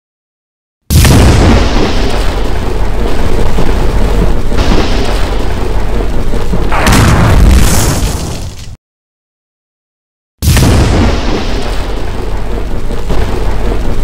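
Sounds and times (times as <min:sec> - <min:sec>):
electric discharge rumble: 0:00.9 - 0:08.6, 0:10.4 - 0:14.0.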